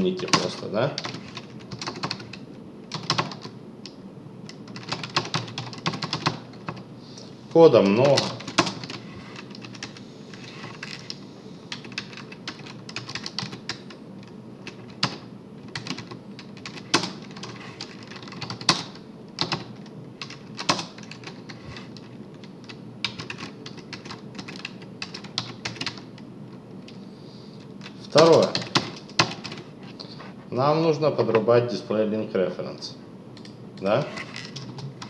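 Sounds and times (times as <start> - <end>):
typing on a keyboard: 0.2 - 3.5, 4.5 - 6.8, 8.0 - 10.0, 10.8 - 14.0, 14.6 - 21.5, 22.4 - 26.2, 28.2 - 29.6.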